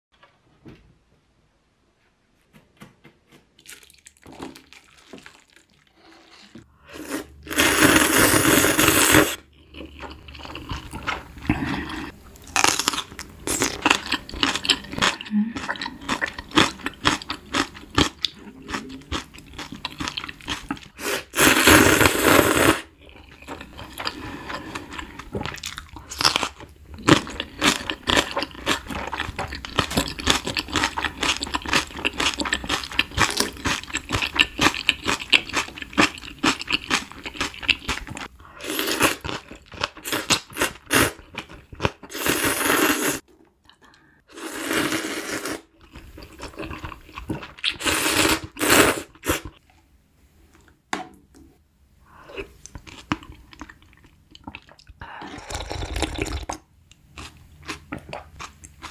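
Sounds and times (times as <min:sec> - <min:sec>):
crunching and chewing peppers: 0:09.4 - 0:21.0, 0:23.0 - 0:38.3.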